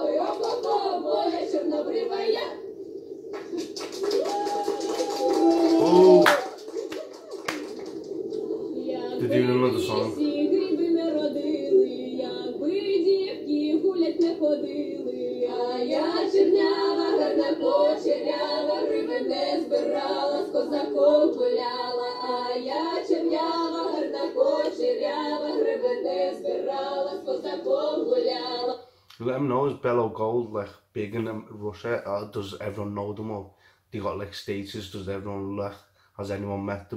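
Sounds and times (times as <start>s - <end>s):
women singing in harmony: 0.0s - 3.5s, 8.2s - 28.9s.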